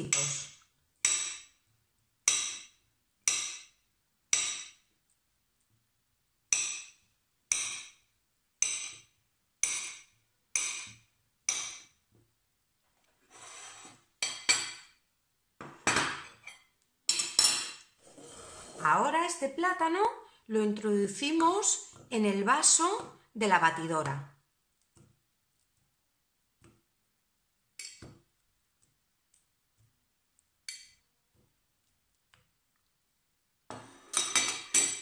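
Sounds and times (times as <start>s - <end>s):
knife scraping plate: 13.3s - 14.6s, 17.6s - 19.0s
crockery clinking: 13.6s - 15.0s, 15.8s - 17.9s, 33.7s - 35.0s
knife clinking on ceramic plate: 14.2s - 14.9s, 15.8s - 17.9s, 34.1s - 35.0s.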